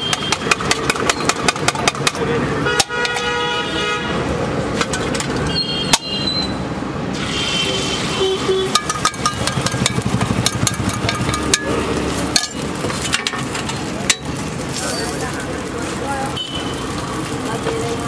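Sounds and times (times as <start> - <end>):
street noise: 0.0 - 18.0
metal utensils clinking on griddle: 0.1 - 2.3, 8.6 - 18.0.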